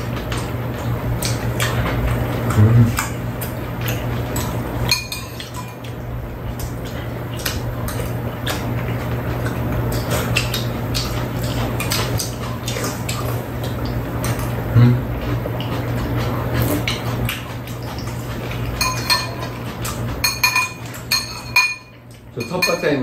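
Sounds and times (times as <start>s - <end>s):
steady low hum: 0.0s - 23.0s
wet eating sounds: 0.0s - 23.0s
utensils clinking against bowls: 4.3s - 6.0s, 17.8s - 23.0s.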